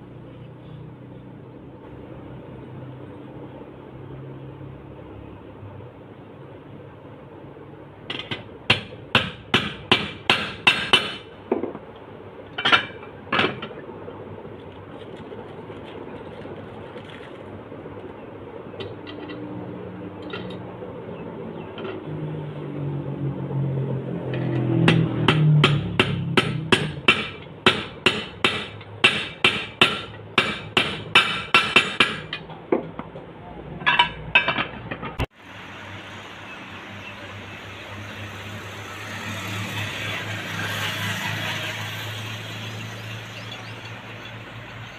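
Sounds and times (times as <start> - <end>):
hammer striking steel: 8.1 - 11.3, 24.4 - 32.5.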